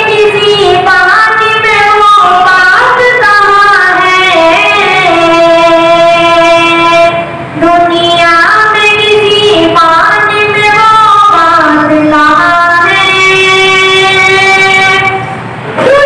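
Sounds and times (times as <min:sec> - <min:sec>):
boy singing unaccompanied: 0:00.0 - 0:16.0.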